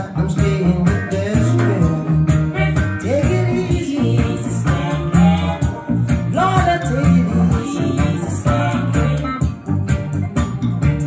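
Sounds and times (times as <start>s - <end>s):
song with singing and beat: 0.0s - 11.0s.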